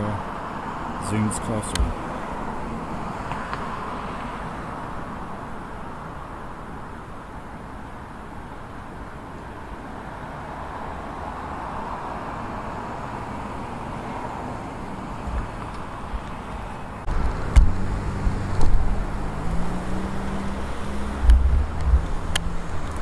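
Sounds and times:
road traffic noise: 0:00.0 - 0:23.0
vehicle engine running close by: 0:12.7 - 0:23.0.

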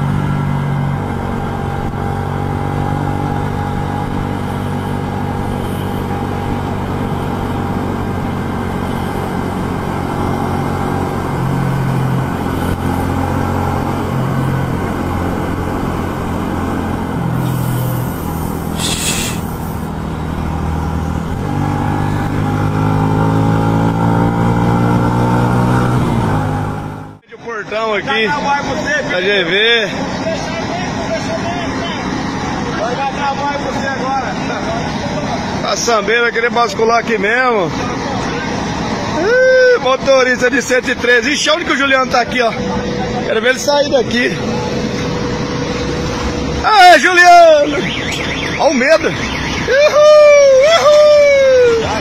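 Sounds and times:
truck engine running: 0:00.0 - 0:24.9, 0:27.8 - 0:52.0
air hiss: 0:17.4 - 0:19.9.

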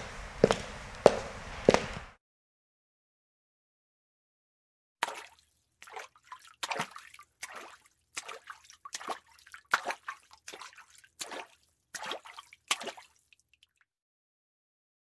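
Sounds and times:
footsteps walking: 0:00.0 - 0:02.2.

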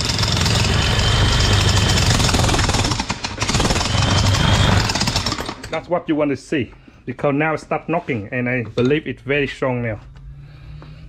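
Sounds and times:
electric jackhammer knocking: 0:00.0 - 0:05.7.

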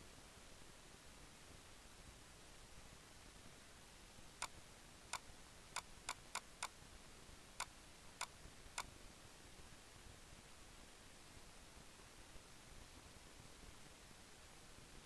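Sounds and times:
mouse button clicking: 0:05.8 - 0:06.7.

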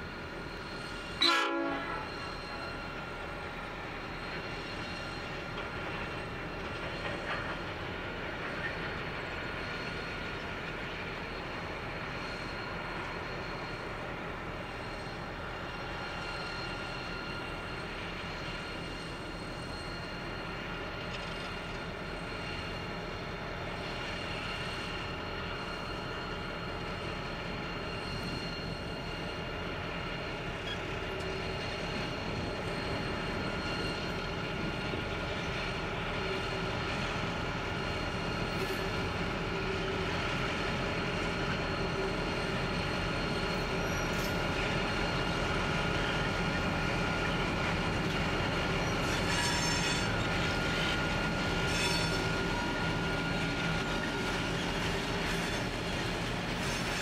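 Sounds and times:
locomotive engines rumbling: 0:00.0 - 0:57.0.

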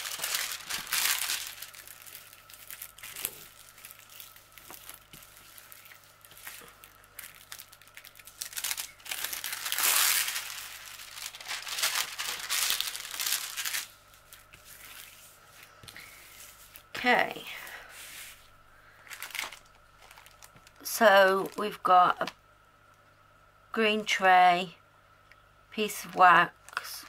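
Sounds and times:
plastic film crinkling: 0:00.0 - 0:16.9, 0:19.0 - 0:22.3.

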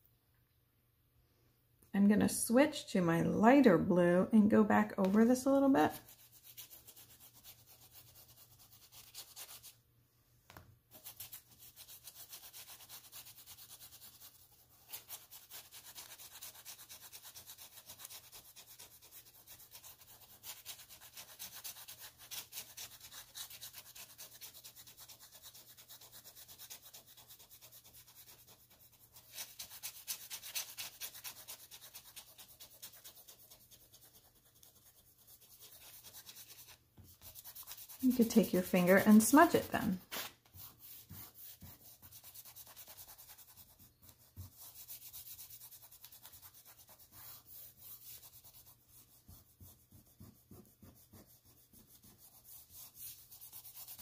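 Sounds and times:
oil pastel scratching on paper: 0:05.0 - 0:09.8, 0:10.9 - 0:54.0.

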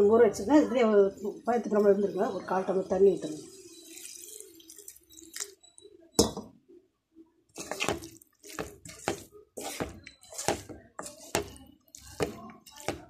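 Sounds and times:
water hissing in pan: 0:03.1 - 0:05.4
wooden spatula scraping pan: 0:07.6 - 0:13.0.

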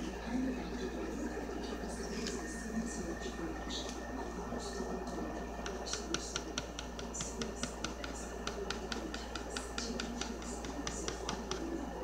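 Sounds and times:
pen ticking on paper: 0:05.6 - 0:11.7.

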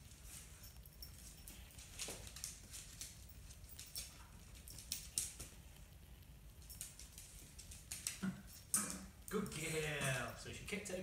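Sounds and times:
dog claws tapping on wooden floor: 0:01.1 - 0:05.6.

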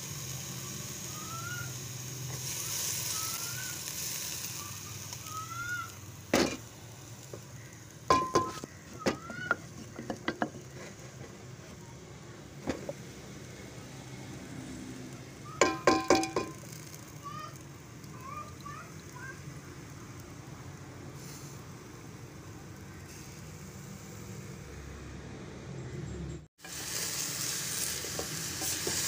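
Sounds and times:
vegetables sizzling in a pot: 0:00.0 - 0:24.8, 0:26.6 - 0:29.0
wooden spatula clacking on pot: 0:15.6 - 0:16.7.

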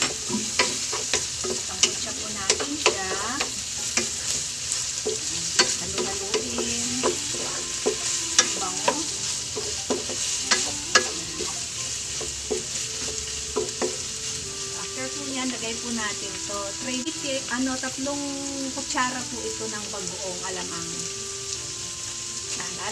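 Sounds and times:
wooden spatula scraping a pan: 0:00.0 - 0:15.6
meat sizzling in a frying pan: 0:00.0 - 0:22.9.

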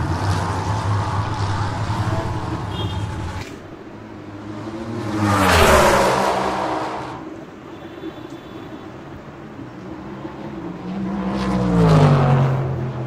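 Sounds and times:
motor vehicle passing by: 0:00.0 - 0:07.3, 0:10.2 - 0:13.0.

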